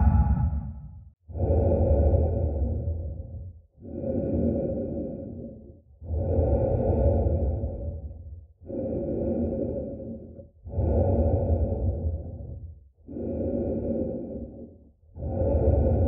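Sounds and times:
deep low rumble: 0.0s - 1.1s
heavy muffled breathing: 0.0s - 16.0s.

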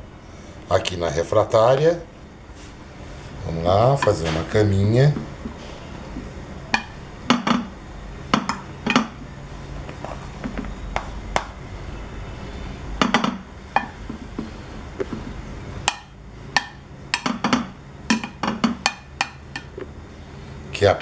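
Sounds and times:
spoon knocking on glass: 6.8s - 7.7s, 13.0s - 14.2s, 15.9s - 19.7s.

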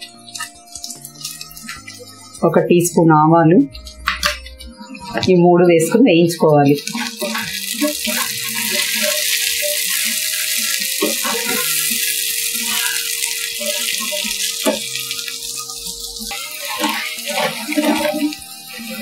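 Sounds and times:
seeds sizzling in hot oil: 6.7s - 19.0s.

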